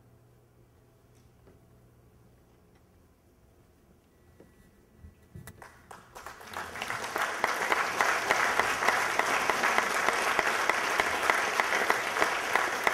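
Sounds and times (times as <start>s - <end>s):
audience applause: 5.6s - 12.9s.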